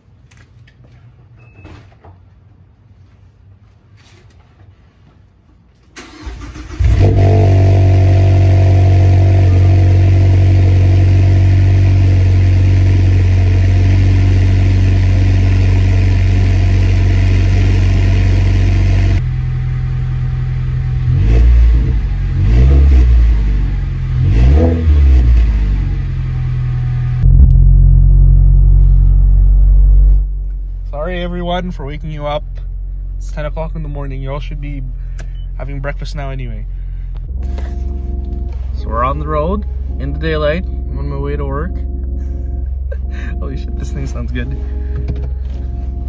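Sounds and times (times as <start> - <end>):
car engine starting and idling: 5.9 - 46.0
engine drone inside cabin: 6.0 - 46.0
engine revving: 6.1 - 19.2, 20.9 - 30.3.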